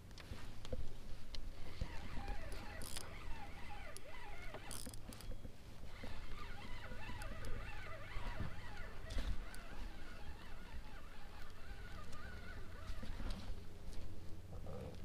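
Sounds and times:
geese calling: 0:01.6 - 0:04.8, 0:05.8 - 0:13.5.

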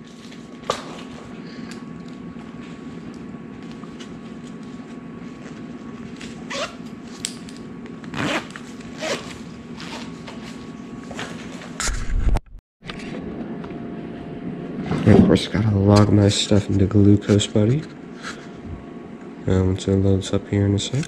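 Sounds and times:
low steady hum: 0:00.0 - 0:21.0
zipper rasping: 0:06.4 - 0:06.8, 0:08.1 - 0:10.2.

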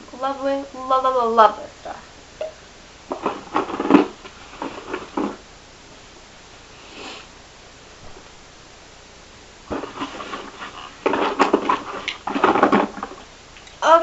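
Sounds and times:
cosmetic packaging rustling: 0:03.1 - 0:05.4, 0:09.7 - 0:13.4.

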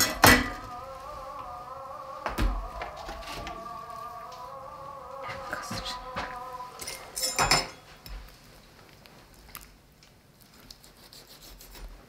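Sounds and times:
kitchenware clinking: 0:06.8 - 0:07.9.

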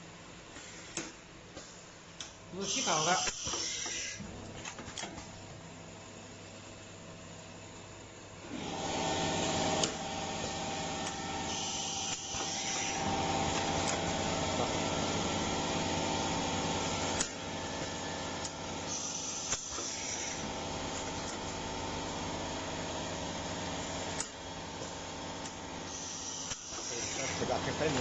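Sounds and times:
welding machine running: 0:02.2 - 0:04.3, 0:08.5 - 0:28.0.

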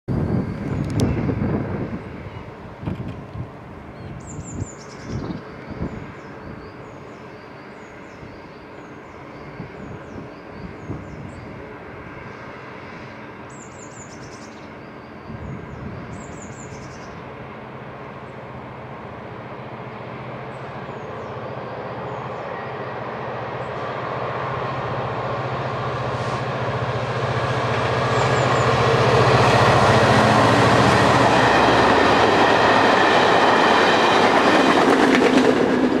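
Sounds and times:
locomotive engine hum: 0:00.1 - 0:36.0
wheel and rail noise: 0:17.1 - 0:36.0.

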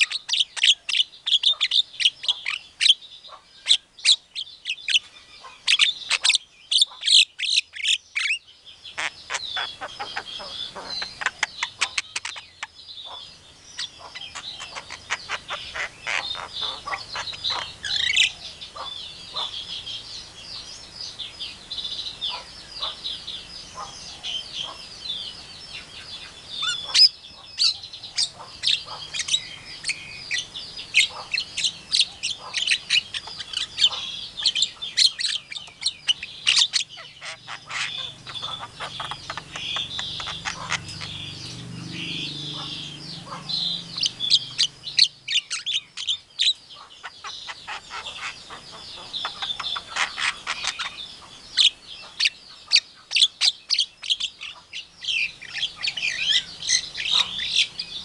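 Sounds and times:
myna chirping and whistling: 0:00.0 - 0:58.0
bird rapid clicking: 0:10.8 - 0:12.7, 0:37.2 - 0:41.6.

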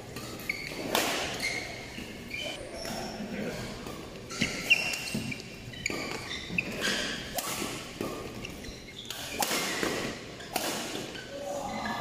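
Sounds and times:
shoes squeaking on court: 0:00.0 - 0:12.0
racket hitting shuttlecock: 0:00.1 - 0:02.2, 0:03.8 - 0:11.2.

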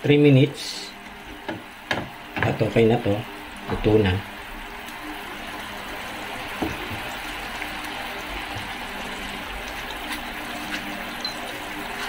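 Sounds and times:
broth simmering in a frying pan: 0:00.0 - 0:12.0
spatula knocking against pan: 0:01.4 - 0:02.5.

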